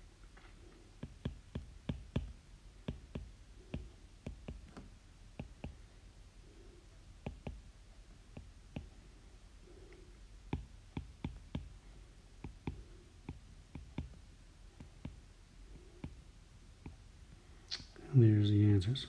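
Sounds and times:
stylus tapping on glass screen: 0:01.0 - 0:04.8, 0:05.4 - 0:05.8, 0:07.2 - 0:07.7, 0:10.5 - 0:11.8, 0:12.4 - 0:14.2.

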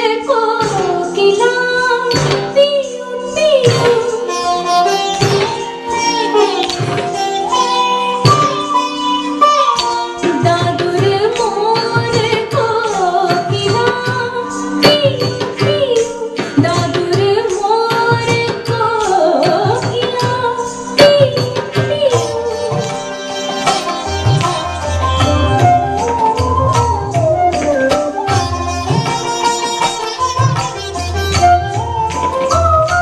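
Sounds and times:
hand-drum strokes: 0:09.8 - 0:33.0.

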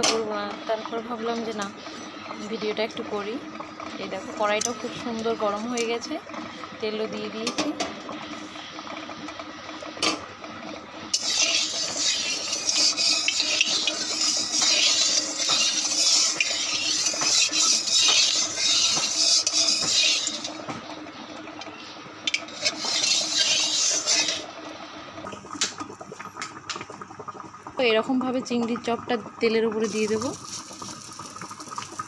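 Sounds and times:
metal spatula scraping a pan: 0:11.2 - 0:20.6, 0:22.4 - 0:24.4.

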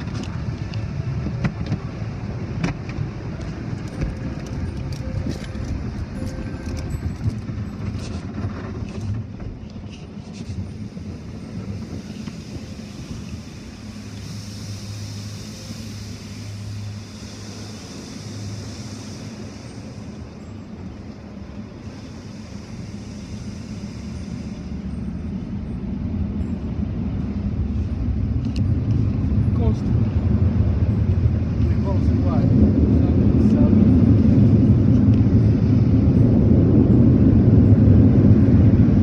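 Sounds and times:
muffled car wash machinery rumble: 0:00.0 - 0:39.0
water spray hissing: 0:11.6 - 0:20.4.

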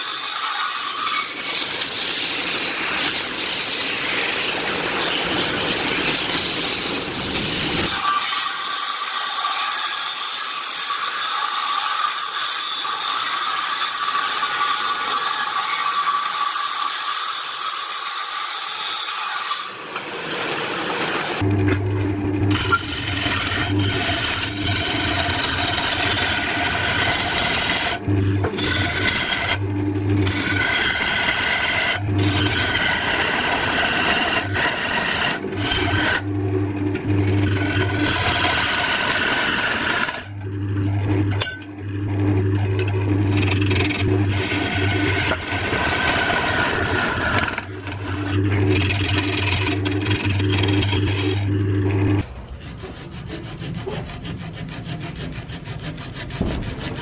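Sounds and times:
lathe humming: 0:21.2 - 0:57.0
chisel scraping spinning wood: 0:21.4 - 0:57.0.

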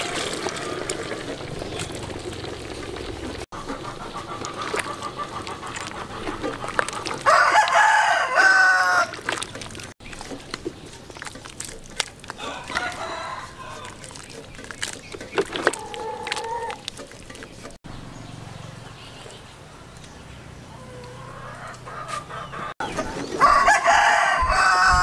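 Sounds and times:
rooster crowing: 0:07.2 - 0:09.2, 0:12.4 - 0:14.0, 0:23.4 - 0:25.0.

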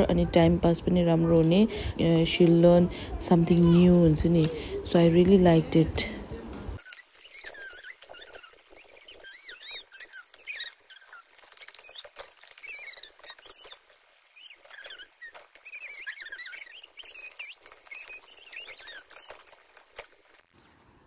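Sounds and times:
laminated boards squeaking: 0:06.8 - 0:20.5.

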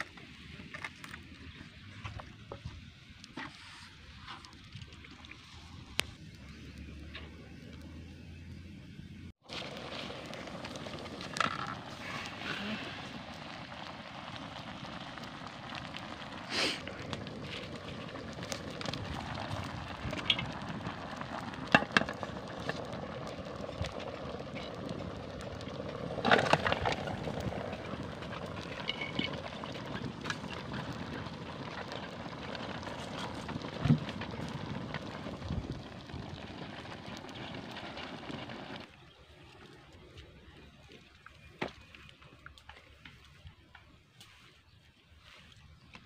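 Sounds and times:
wood fire crackling and popping: 0:00.0 - 0:08.0, 0:09.3 - 0:44.4.

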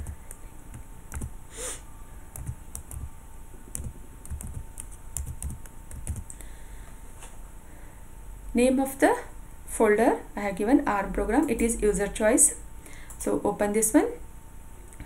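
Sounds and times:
keyboard typing: 0:00.0 - 0:01.3, 0:02.3 - 0:03.1, 0:03.7 - 0:06.4.

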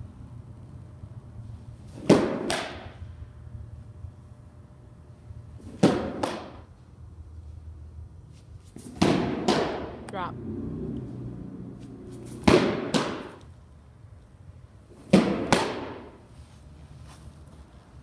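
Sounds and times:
ball smacking into mitt: 0:02.0 - 0:02.9, 0:05.7 - 0:06.6, 0:15.1 - 0:16.1.

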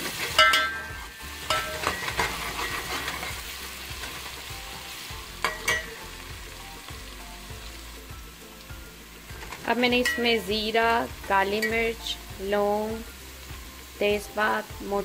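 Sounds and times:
onion sizzling in hot oil: 0:00.0 - 0:15.0
metal spatula clinking against pot: 0:00.3 - 0:03.4, 0:05.4 - 0:06.0, 0:09.4 - 0:10.4, 0:11.6 - 0:12.0.

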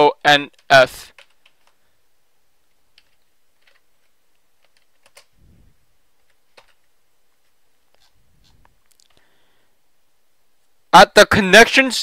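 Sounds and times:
keystrokes on computer keyboard: 0:00.6 - 0:01.8, 0:02.9 - 0:05.3, 0:06.2 - 0:06.9.

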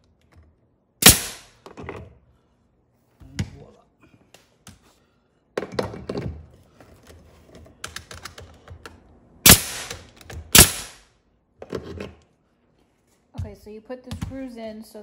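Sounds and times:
nail gun firing: 0:01.0 - 0:01.5, 0:09.5 - 0:11.0.

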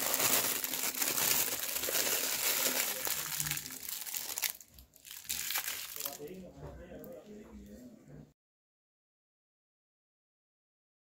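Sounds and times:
plastic piping bag crinkling: 0:00.0 - 0:06.4.

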